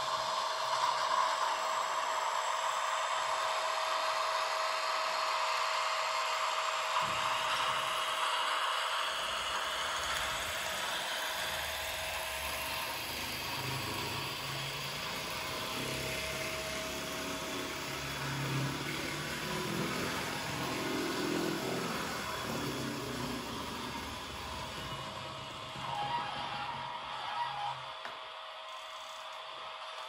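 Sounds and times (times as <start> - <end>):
electric locomotive running sound: 0.0 - 30.0
model train motor and wheels: 0.0 - 30.0
low hums: 9.4 - 27.8.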